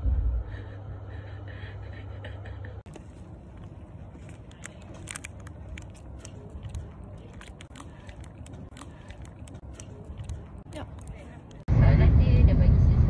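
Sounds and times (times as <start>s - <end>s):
chewing: 2.4s - 11.7s
crunching bites into ice cream bars: 3.6s - 11.6s.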